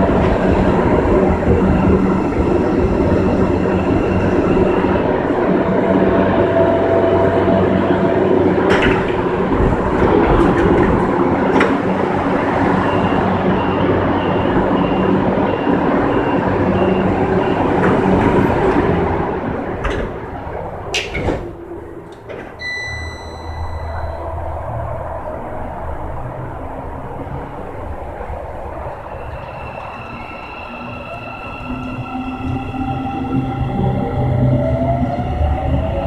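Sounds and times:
train rolling on steel rails: 0:00.0 - 0:36.0
short high beeps: 0:22.6 - 0:24.3.

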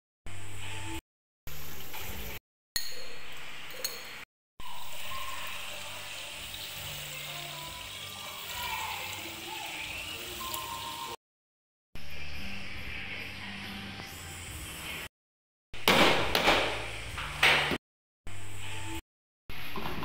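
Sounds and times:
tap water filling a pot: 0:04.7 - 0:11.1.

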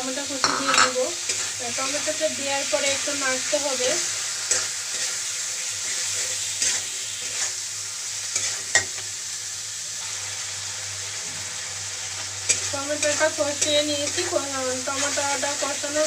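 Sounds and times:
masala sizzling in a pan: 0:00.0 - 0:16.0.

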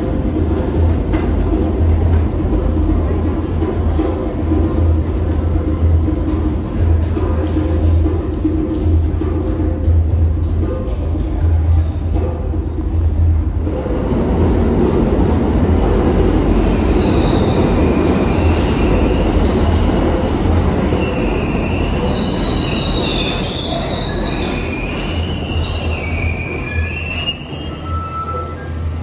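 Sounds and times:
subway train rumbling: 0:00.0 - 0:29.0
train wheels squealing: 0:16.6 - 0:19.8, 0:20.8 - 0:29.0.

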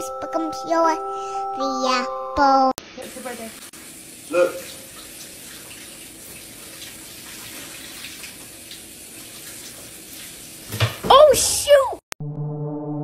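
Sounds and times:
running water hissing: 0:02.9 - 0:11.1.

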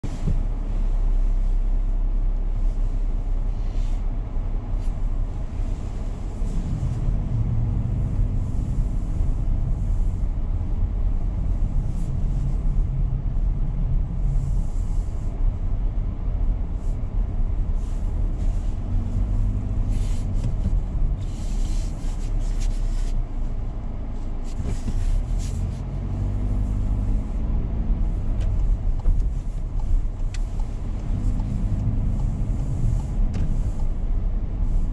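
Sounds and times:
car engine hum: 0:00.0 - 0:34.9
low road rumble: 0:00.0 - 0:34.9.

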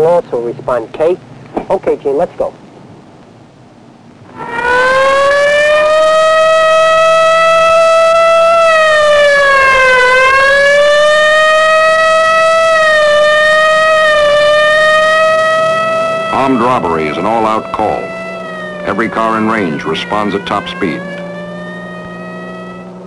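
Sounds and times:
police siren wailing: 0:04.3 - 0:23.0.

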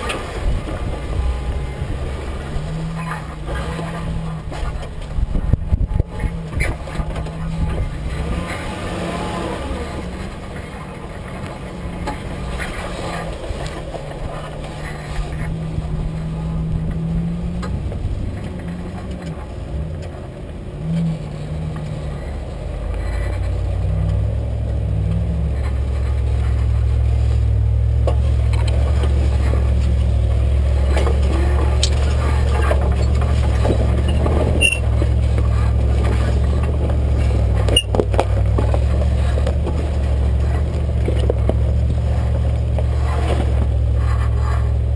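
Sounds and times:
vehicle engine low drone: 0:00.0 - 0:44.9
knocks and rattles: 0:28.0 - 0:44.4.

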